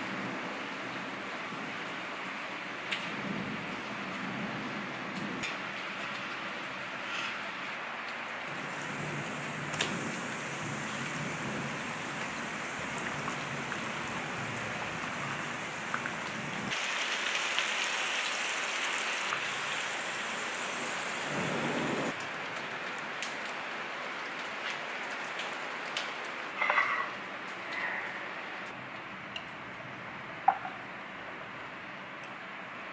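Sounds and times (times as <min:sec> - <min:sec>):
fries sizzling in hot oil: 0:08.5 - 0:22.2.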